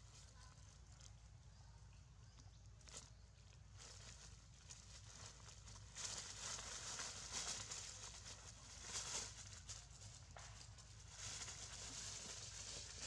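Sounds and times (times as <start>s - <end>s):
dry leaves rustling and crunching: 2.8s - 13.0s.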